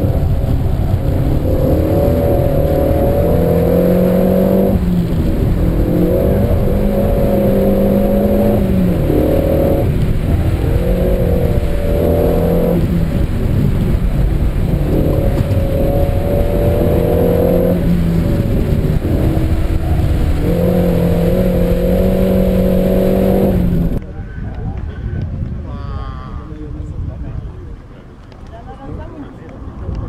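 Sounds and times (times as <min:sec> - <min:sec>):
car engine revving hard: 0:00.0 - 0:24.0
road rumble: 0:00.0 - 0:30.0.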